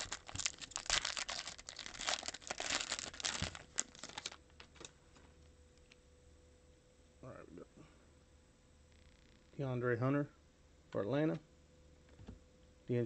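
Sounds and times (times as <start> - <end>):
foil wrapper crinkling: 0.0 - 4.9.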